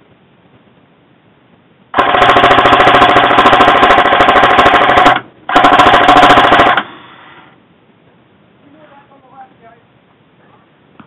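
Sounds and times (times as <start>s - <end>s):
airsoft rifle automatic fire: 1.9s - 7.0s.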